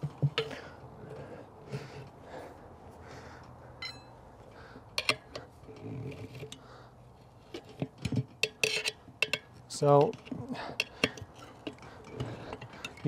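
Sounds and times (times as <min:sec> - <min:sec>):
tire levers clicking on metal rim: 0:04.9 - 0:06.6, 0:07.4 - 0:13.0.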